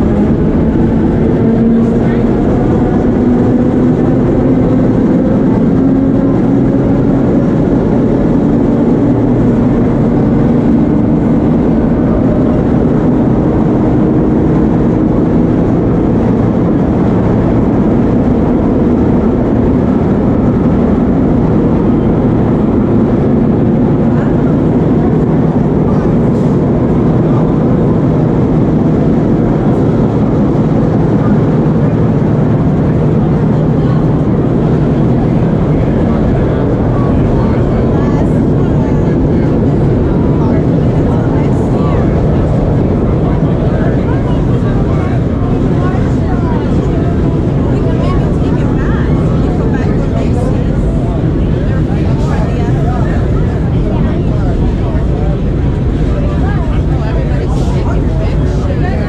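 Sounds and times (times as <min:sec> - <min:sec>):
low hum: 0:00.0 - 0:59.0
subway car wheels rumbling on rails: 0:00.0 - 0:59.0.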